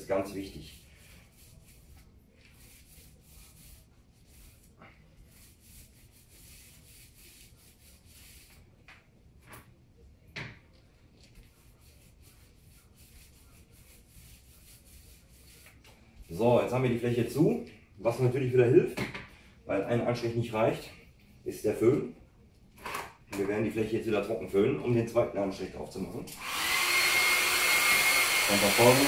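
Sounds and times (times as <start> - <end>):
paint roller rubbing on wall: 0.4 - 8.8, 11.1 - 16.6.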